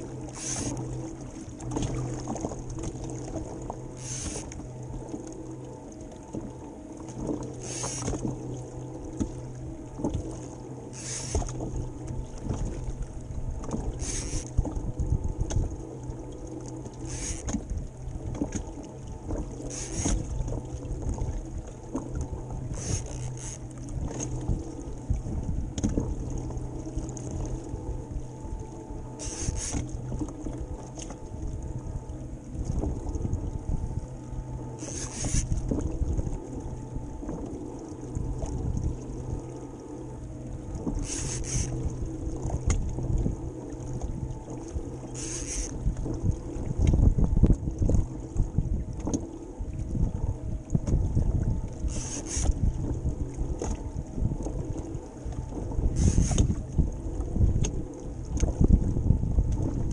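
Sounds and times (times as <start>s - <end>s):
steady low hum: 0.0s - 59.9s
water slapping against a hull: 0.0s - 59.9s
wind on microphone: 9.9s - 15.8s, 17.1s - 37.5s, 38.1s - 39.5s, 40.6s - 59.9s.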